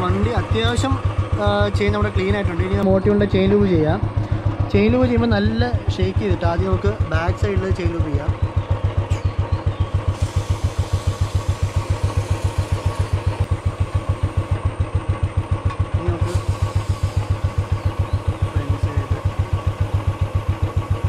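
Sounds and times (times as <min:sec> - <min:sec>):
motorcycle engine idling: 0:00.0 - 0:21.0.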